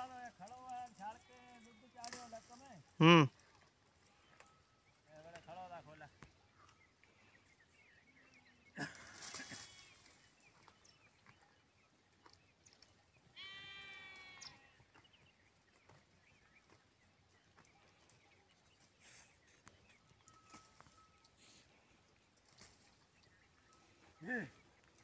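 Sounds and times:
livestock bleating: 1.0 - 2.2, 13.3 - 14.9.

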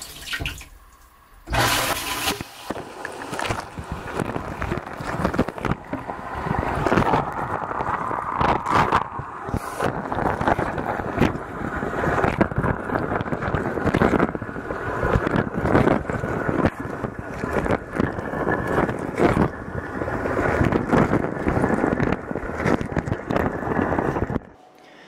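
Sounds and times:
water jets spraying: 0.0 - 24.2.

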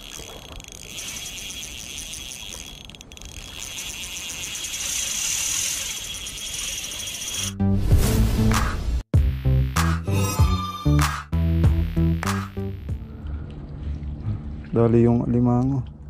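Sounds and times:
fishing reel whirring: 0.0 - 7.6
music: 7.5 - 13.3.

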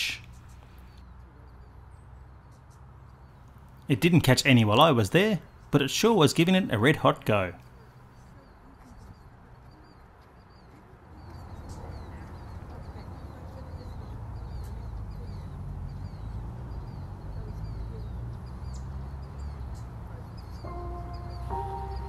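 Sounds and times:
high-pitched bird chirps: 20.4 - 22.0.

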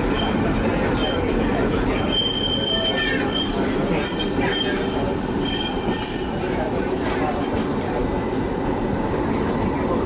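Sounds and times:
tram rumbling on rails: 0.0 - 10.0
high-pitched wheel squeals: 1.9 - 6.6.

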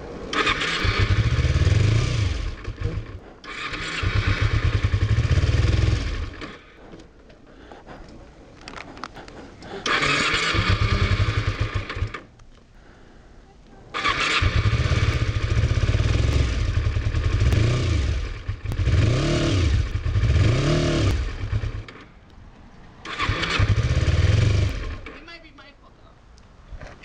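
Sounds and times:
motorcycle engine revving: 0.3 - 7.0, 9.8 - 12.3, 14.0 - 22.2, 23.0 - 25.2.

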